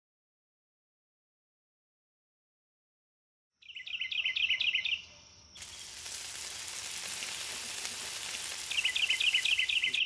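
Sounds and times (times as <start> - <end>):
small bird chirping: 3.6 - 10.0
food sizzling in a pan: 5.6 - 10.0.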